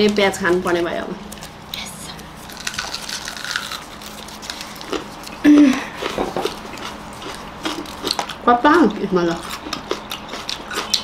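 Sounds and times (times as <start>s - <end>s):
onion skin crackling: 1.3s - 5.5s
crunchy chewing of raw onion: 1.3s - 8.5s, 9.4s - 11.0s.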